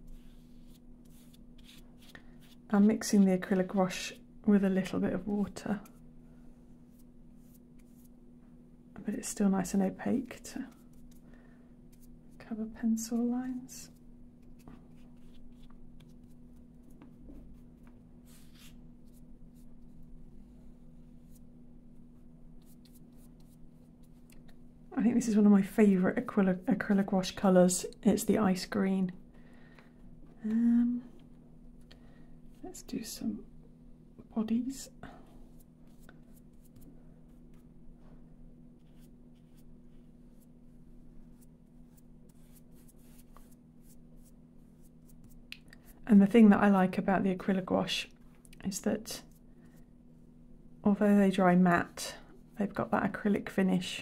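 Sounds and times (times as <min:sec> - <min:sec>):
paintbrush brushing on paper: 0:00.0 - 0:03.8, 0:06.8 - 0:08.1, 0:13.9 - 0:24.3, 0:38.8 - 0:45.5
steady low hum: 0:00.0 - 0:54.0.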